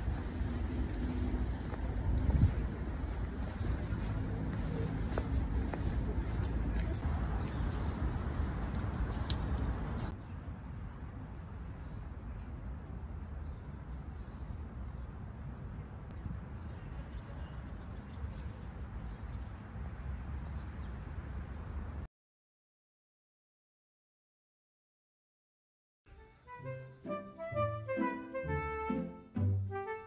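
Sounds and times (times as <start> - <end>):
wind rumble on microphone: 0.0 - 22.0.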